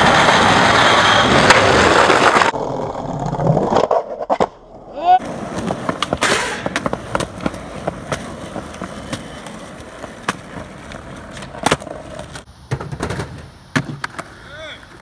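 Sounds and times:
skateboard wheels rolling on concrete: 0.0s - 15.0s
skateboard clacking on landings: 5.2s - 15.0s.

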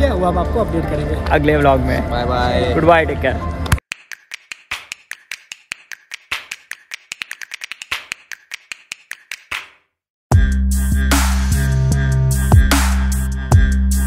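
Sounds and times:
rapid sharp clicks: 3.9s - 9.8s
electronic music with heavy bass: 10.3s - 14.0s.

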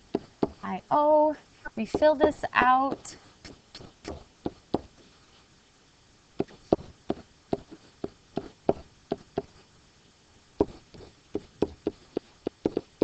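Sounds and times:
stylus tapping on writing surface: 0.1s - 0.6s, 1.9s - 4.9s, 10.6s - 12.9s.

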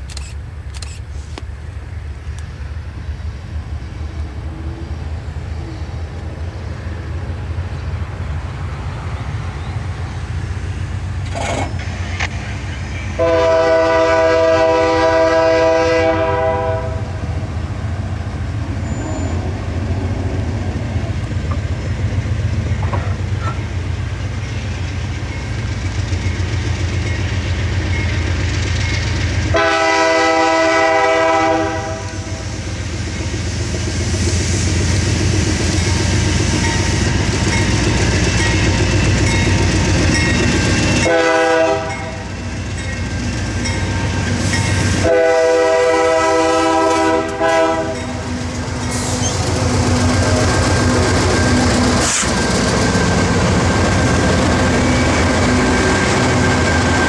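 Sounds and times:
diesel locomotive rumbling: 0.0s - 57.0s
train air horn: 13.1s - 17.3s, 29.5s - 32.5s, 41.0s - 42.2s, 44.9s - 48.3s.

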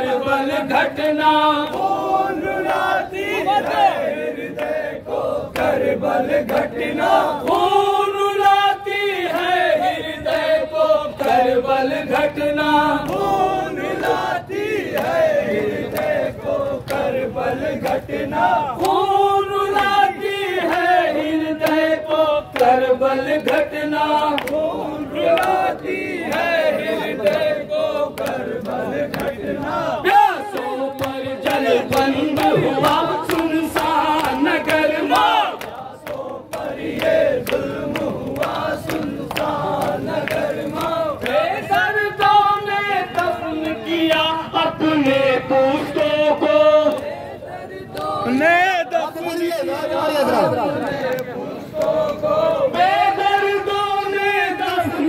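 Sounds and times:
men chanting in unison: 0.0s - 55.0s
lead voice over microphone: 31.6s - 33.3s.

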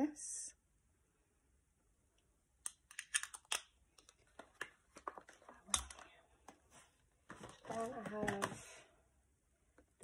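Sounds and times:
light clicks and taps of packaging: 7.2s - 8.8s.

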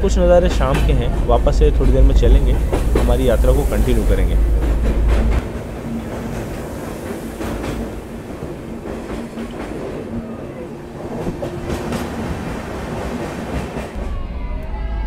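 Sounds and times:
wheels clicking over rail joints: 0.0s - 14.0s
train rolling rumble: 0.0s - 15.0s.

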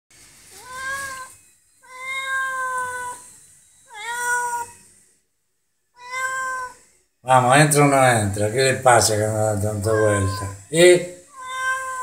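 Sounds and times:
cat meowing: 0.5s - 4.9s, 5.9s - 6.9s, 9.7s - 12.0s.

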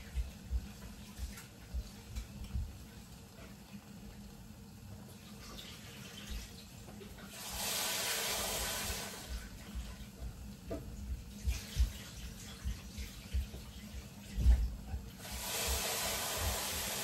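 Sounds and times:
kitchen tap running into pot: 7.2s - 9.6s, 15.2s - 17.0s.

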